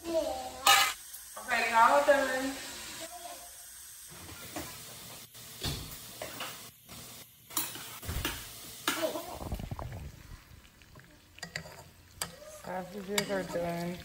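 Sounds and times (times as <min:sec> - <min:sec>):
sausage sizzling in a pot: 0:00.0 - 0:14.0
utensil knocking and scraping pot: 0:11.4 - 0:14.0.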